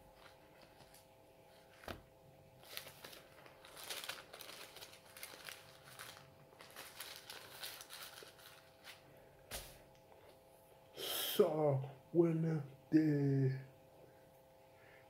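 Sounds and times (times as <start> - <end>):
thin pages rustling: 0.2 - 9.8.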